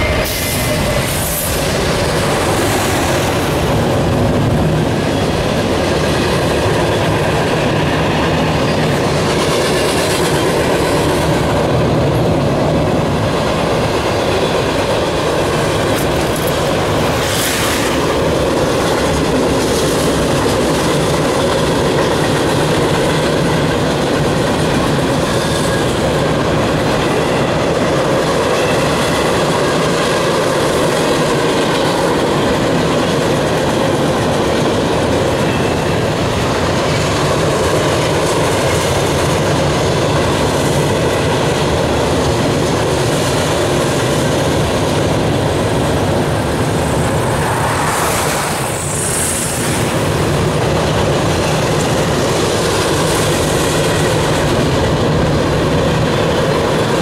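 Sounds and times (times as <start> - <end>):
freight train wheels rumbling on rail: 0.0 - 57.0.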